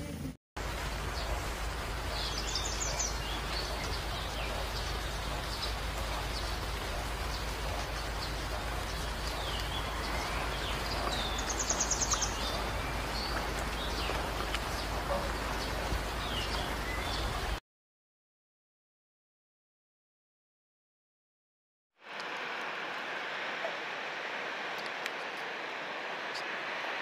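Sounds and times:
outdoor hiss: 0.1s - 17.6s, 22.0s - 27.0s
birds chirping and whistling: 2.1s - 17.6s.

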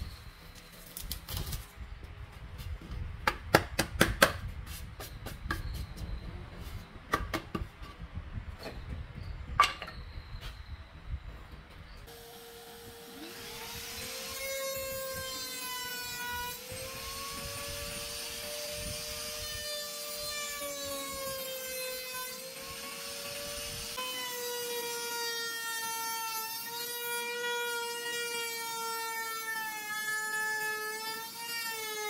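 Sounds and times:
router spindle whine: 12.1s - 24.8s.

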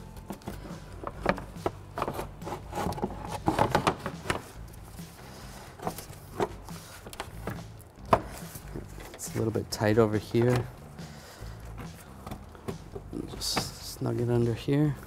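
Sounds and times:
plastic fan shroud clacking and scraping: 0.4s - 4.6s, 5.8s - 10.7s.

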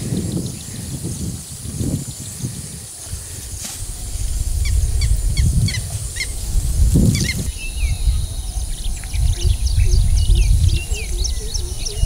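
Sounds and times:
steady low rumble: 3.2s - 12.0s.

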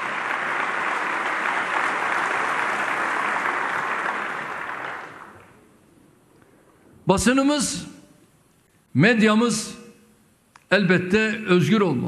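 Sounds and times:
large audience applauding: 0.0s - 5.7s.

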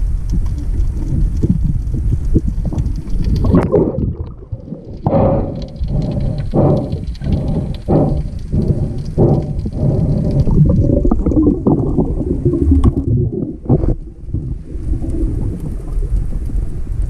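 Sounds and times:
water rushing and bubbling underwater: 0.0s - 17.0s
rasping breathing puffs: 4.7s - 11.1s.

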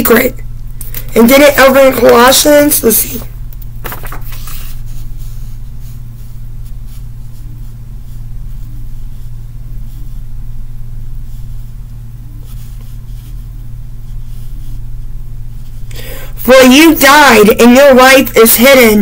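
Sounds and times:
steady low hum: 0.0s - 19.0s
paper pages rustling: 3.8s - 7.5s.

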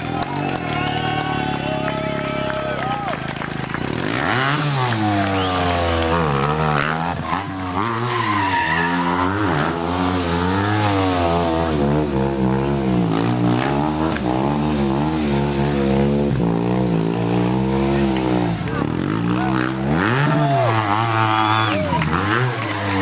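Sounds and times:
motorcycle engine revving: 0.0s - 23.0s
tyre squeal: 7.2s - 9.7s.

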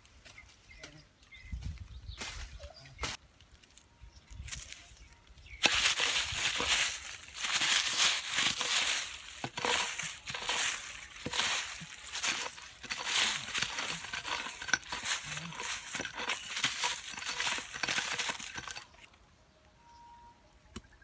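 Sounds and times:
knife scraping dry soil: 5.6s - 19.1s.

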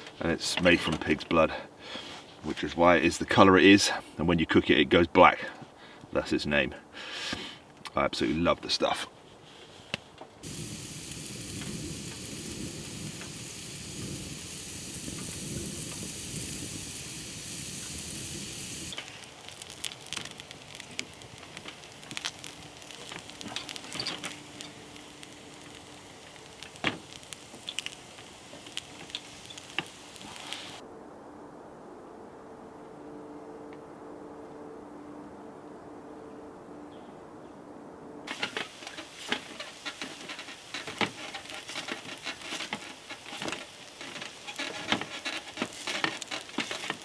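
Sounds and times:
food sizzling in a pan: 10.4s - 30.8s, 38.3s - 47.0s.

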